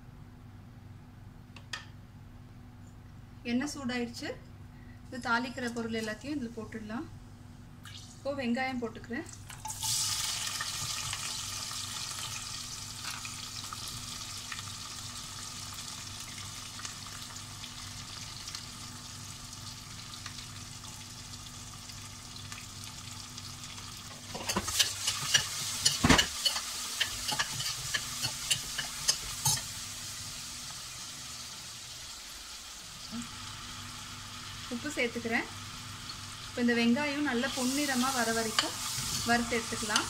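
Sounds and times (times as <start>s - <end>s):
onions sizzling in oil: 9.5s - 40.0s.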